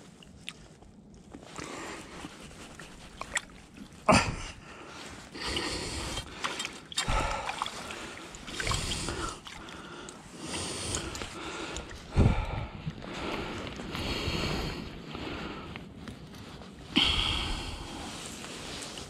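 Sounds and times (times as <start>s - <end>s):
clothing rustling: 0.6s - 5.4s, 17.7s - 19.0s
small water splashes: 2.7s - 4.0s, 5.4s - 12.0s.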